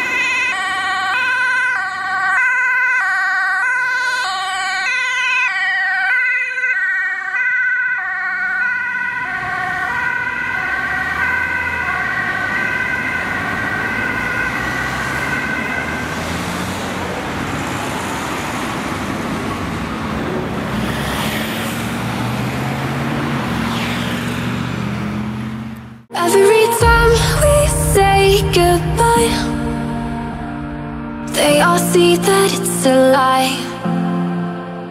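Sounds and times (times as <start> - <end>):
ambulance two-tone siren: 0.0 - 20.4
passing road traffic: 0.0 - 34.9.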